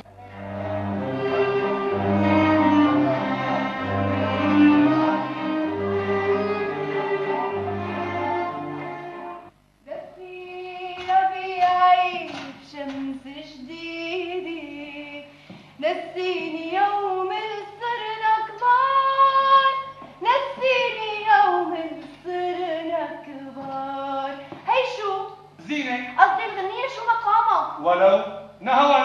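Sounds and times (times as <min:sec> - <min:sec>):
woman singing: 0:09.9 - 0:25.4.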